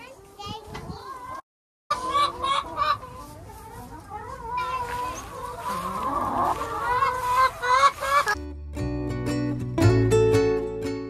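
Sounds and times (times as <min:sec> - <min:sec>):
hens clucking: 0:01.2 - 0:08.4.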